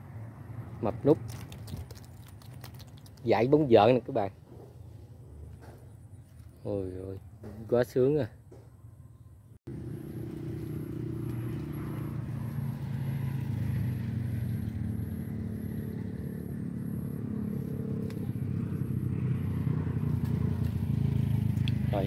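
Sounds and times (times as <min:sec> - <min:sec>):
motor engine running: 0:09.7 - 0:22.0.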